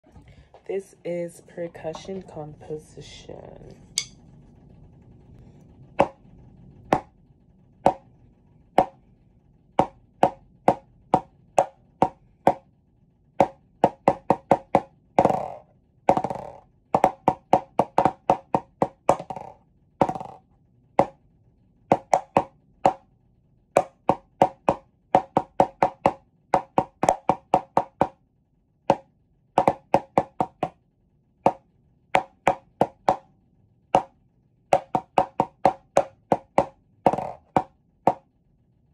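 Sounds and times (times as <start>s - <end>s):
sticks knocking on wood block: 7.8s - 8.0s, 8.8s - 9.0s, 9.8s - 12.6s, 13.4s - 20.4s, 21.9s - 23.0s, 23.8s - 28.2s, 28.9s - 30.7s, 32.2s - 33.2s, 34.7s - 38.2s.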